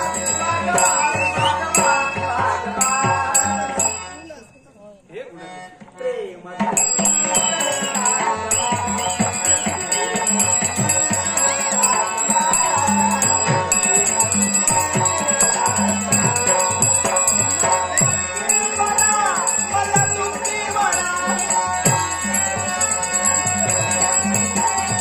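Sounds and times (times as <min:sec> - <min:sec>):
harmonium melody: 0:00.0 - 0:25.0
hand cymbals ringing: 0:06.8 - 0:25.0.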